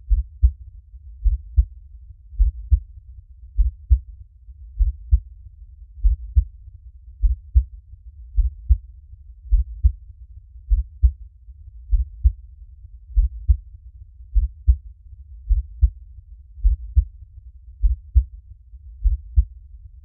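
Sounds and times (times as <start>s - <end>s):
slow heartbeat thumps: 0.0s - 0.6s, 1.2s - 1.8s, 2.4s - 2.9s, 3.6s - 4.1s, 4.8s - 5.3s, 6.0s - 6.5s, 7.2s - 7.7s, 8.3s - 8.8s, 9.5s - 10.0s, 10.7s - 11.2s, 11.9s - 12.4s, 13.1s - 13.6s, 14.3s - 14.8s, 15.4s - 16.0s, 16.6s - 17.1s, 17.8s - 18.3s, 19.0s - 19.6s.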